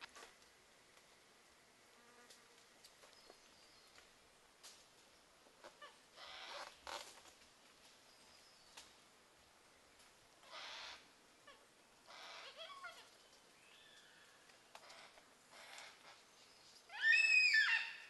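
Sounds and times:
faint squeaky calls: 5.6s - 7.0s, 10.4s - 18.0s
harsh rasping bird calls: 10.4s - 11.1s.

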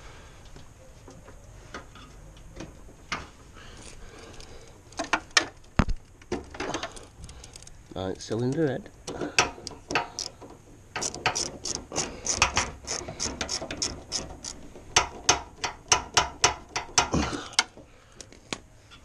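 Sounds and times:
socket ratchet clicking: 11.0s - 18.3s.

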